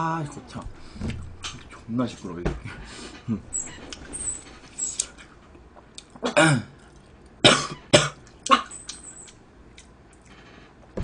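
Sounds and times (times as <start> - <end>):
man coughing: 6.2 - 6.8, 7.4 - 8.8.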